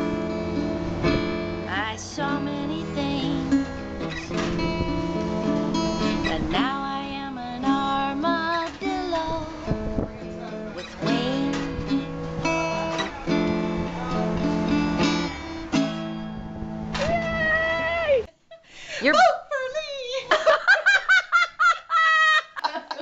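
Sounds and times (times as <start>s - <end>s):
acoustic guitar strumming: 0.0s - 18.3s
woman singing: 1.7s - 3.8s, 6.0s - 9.8s, 10.9s - 12.1s.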